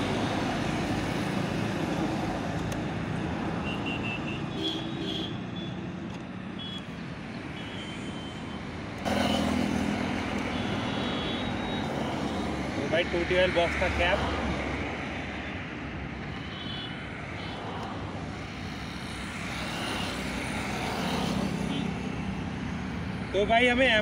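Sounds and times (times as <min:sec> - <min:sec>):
loud vehicle engine: 0:00.0 - 0:03.2, 0:07.6 - 0:13.1
road traffic: 0:00.0 - 0:24.0.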